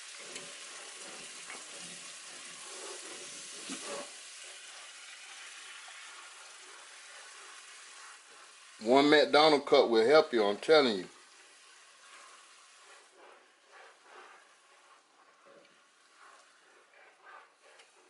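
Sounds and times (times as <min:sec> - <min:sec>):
gravy sizzling in a skillet: 0:00.0 - 0:18.0
spatula scraping a skillet: 0:00.0 - 0:18.0.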